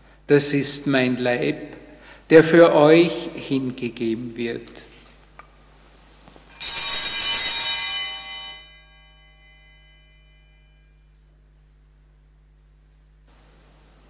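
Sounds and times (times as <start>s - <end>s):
bells jingling: 6.5s - 10.7s.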